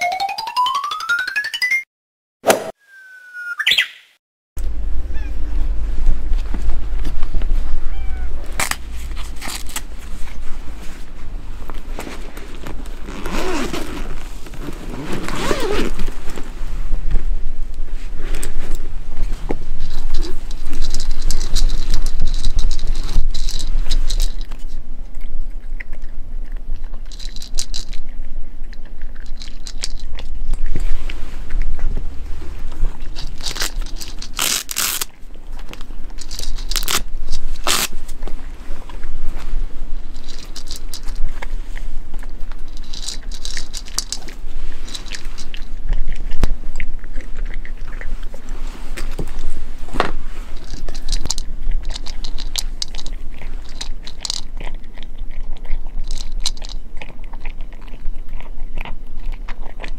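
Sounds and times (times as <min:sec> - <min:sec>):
cat crunching dry kibble: 0:06.1 - 0:59.9
zipper pulled open: 0:12.0 - 0:16.4, 0:36.8 - 0:37.9
velcro ripping: 0:13.0 - 0:16.1, 0:33.4 - 0:35.1, 0:36.6 - 0:37.9.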